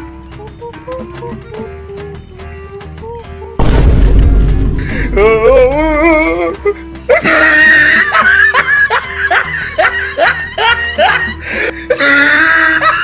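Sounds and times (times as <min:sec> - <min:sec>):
background music: 0:00.0 - 0:13.0
laughter sound effect: 0:07.8 - 0:11.4.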